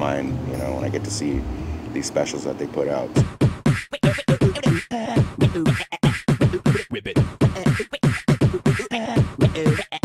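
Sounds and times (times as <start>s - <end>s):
rhythmic vocals over a beat: 3.1s - 10.0s.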